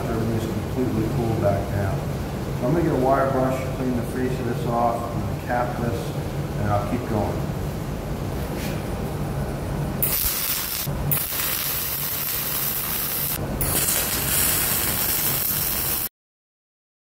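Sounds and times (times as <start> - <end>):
arc welding crackling hiss: 10.0 - 16.1.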